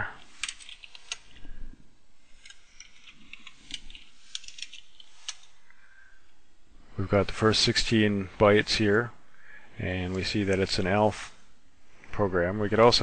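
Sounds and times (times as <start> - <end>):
keyboard typing: 0.4 - 1.3, 2.4 - 5.5.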